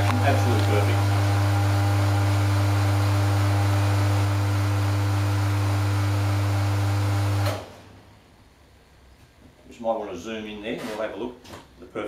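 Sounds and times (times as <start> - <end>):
espresso machine pump humming: 0.0 - 7.6.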